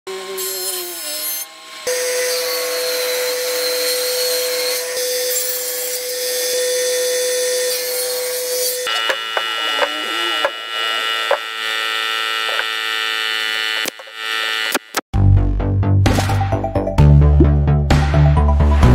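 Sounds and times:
table saw cutting wood: 0.1s - 15.1s.

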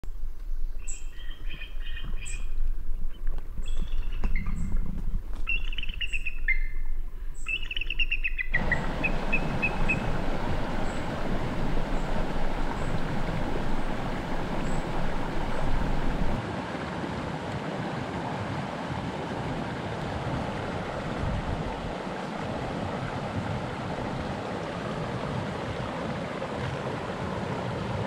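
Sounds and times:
eagle chattering call: 8.6s - 16.4s
creek flowing over rocks: 8.6s - 28.0s.

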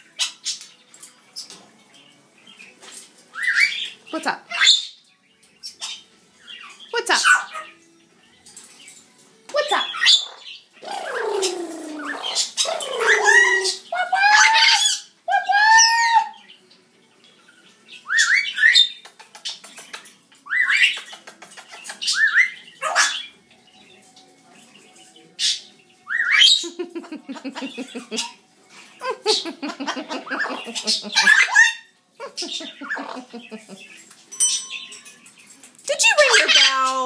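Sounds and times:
parrot squawking: 3.3s - 5.0s, 7.0s - 7.8s, 9.7s - 16.4s, 22.0s - 23.4s, 25.4s - 26.8s, 29.0s - 33.3s, 36.0s - 37.0s.

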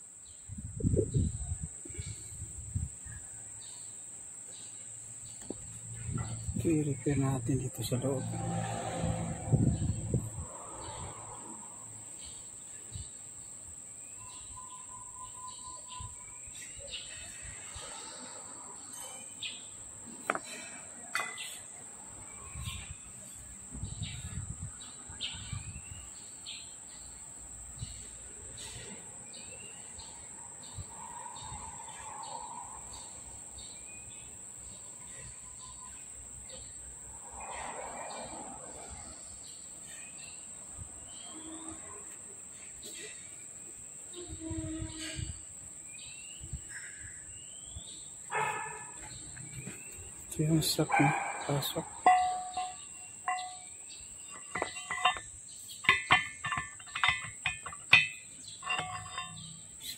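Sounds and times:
steel shaft clinking in metal bore: 50.3s - 59.9s.

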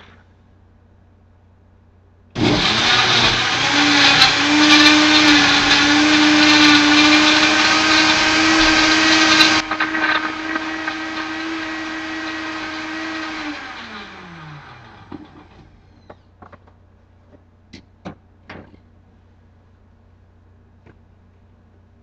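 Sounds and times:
blender motor running: 2.4s - 16.1s.

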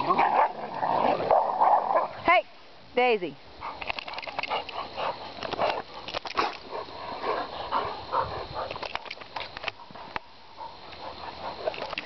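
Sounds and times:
dogs growling in play: 0.0s - 2.2s
scuffling clicks: 3.7s - 6.6s, 8.6s - 10.3s, 11.6s - 12.0s.

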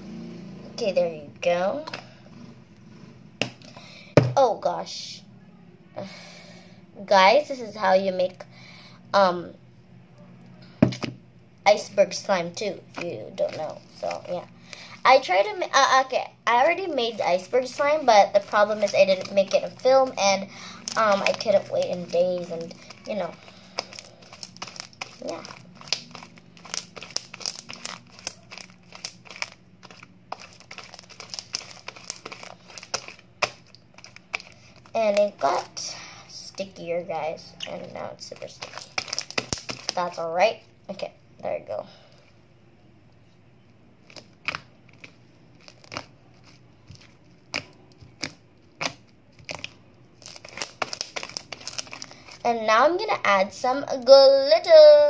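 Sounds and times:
slime crackling and popping: 16.8s - 35.7s, 37.6s - 40.2s, 44.0s - 52.5s.

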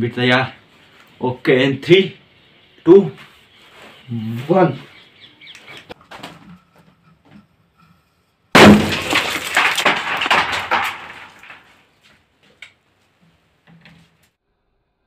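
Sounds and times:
clay shards clattering: 8.6s - 11.8s.

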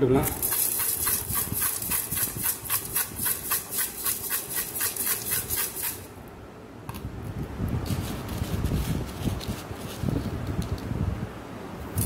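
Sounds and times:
salt rattling in shaken container: 0.2s - 6.1s.

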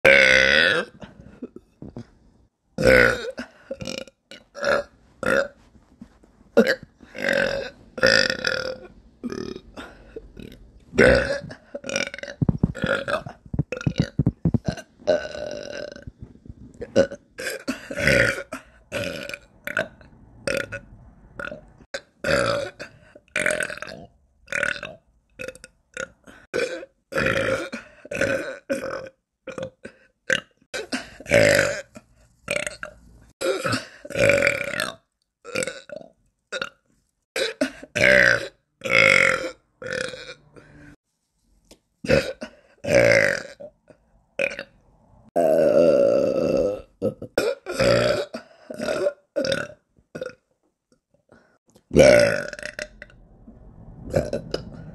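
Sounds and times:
woman belching: 0.1s - 2.0s, 2.8s - 5.6s, 6.6s - 16.1s, 16.8s - 19.9s, 22.2s - 31.9s, 32.5s - 36.8s, 37.4s - 40.7s, 45.4s - 50.4s, 51.9s - 53.1s.

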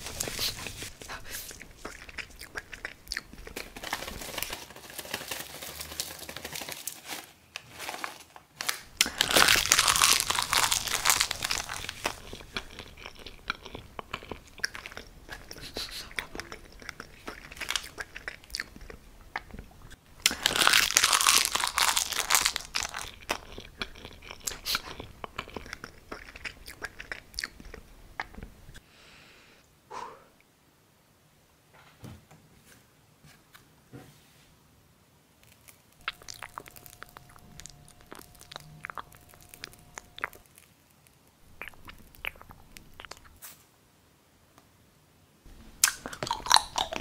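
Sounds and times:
plastic bag crinkling: 0.0s - 18.7s, 20.2s - 26.9s, 35.4s - 43.4s, 45.5s - 47.0s.

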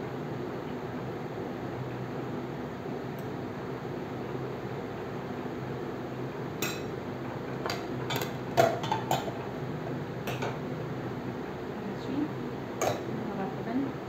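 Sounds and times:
steady low hum: 0.0s - 14.0s
dishes and cutlery clinking: 12.8s - 13.1s.

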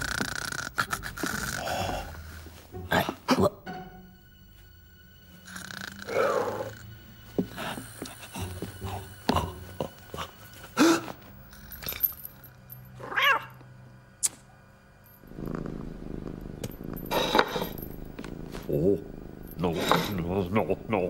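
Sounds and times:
cartoon cat purring: 0.0s - 2.1s, 15.3s - 20.0s.

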